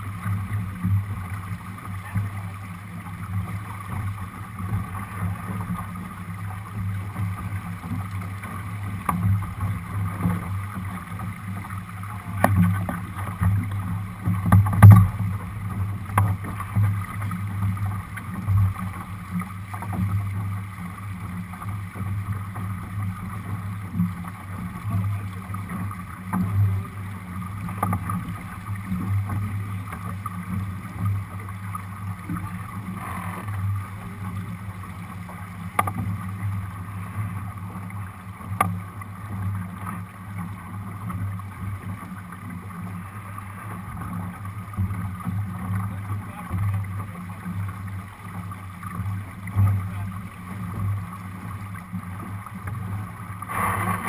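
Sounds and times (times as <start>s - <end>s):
water rushing along boat hull: 0.0s - 54.0s
low pulsing: 53.4s - 54.0s
sharp thumps: 53.5s - 54.0s.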